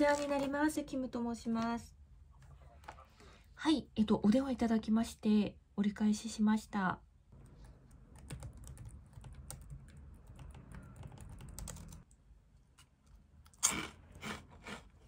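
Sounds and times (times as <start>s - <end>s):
laptop keyboard typing: 7.4s - 12.2s.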